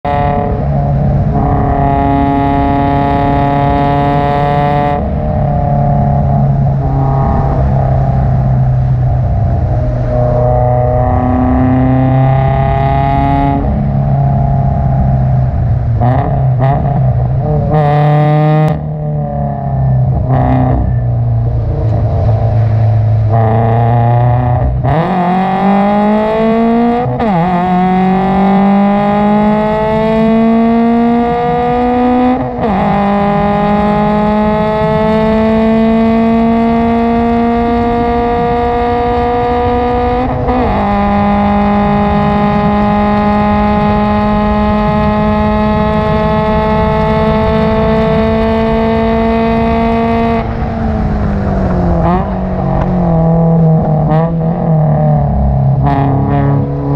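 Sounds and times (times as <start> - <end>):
car engine accelerating through gears: 0.0 - 56.9.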